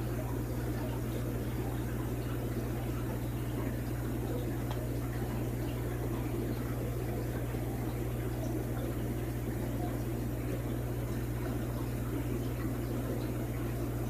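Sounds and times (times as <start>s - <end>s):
low electrical hum: 0.0s - 14.0s
water bubbling: 0.0s - 14.0s.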